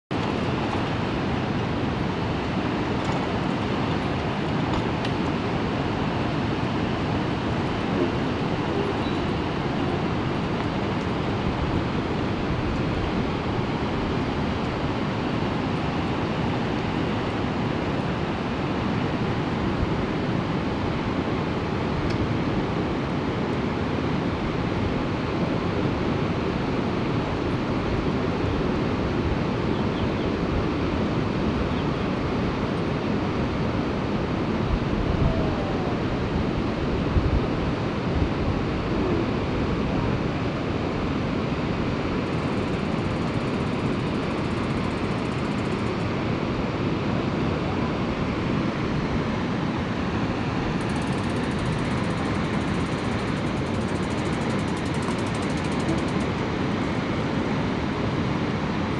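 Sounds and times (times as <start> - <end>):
wind buffeting microphone: 0.1 - 58.9
flooded river rushing: 0.2 - 29.6.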